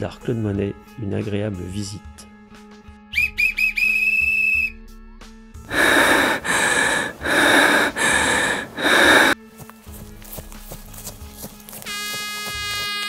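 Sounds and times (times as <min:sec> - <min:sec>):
faint background music: 0:00.0 - 0:03.7, 0:04.3 - 0:13.0
long whistle blast: 0:03.1 - 0:04.8.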